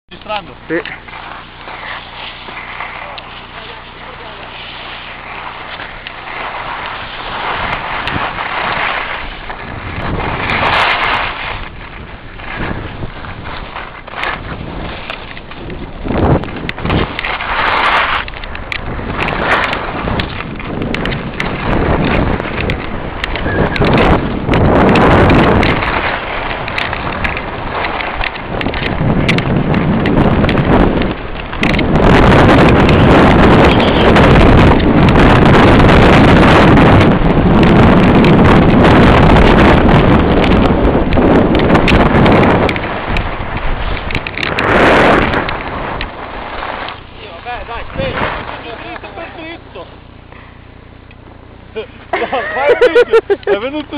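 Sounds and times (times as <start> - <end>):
skis scraping on snow: 0.1 - 50.7
wind buffeting microphone: 0.1 - 53.9
sharp clicks: 15.0 - 35.2.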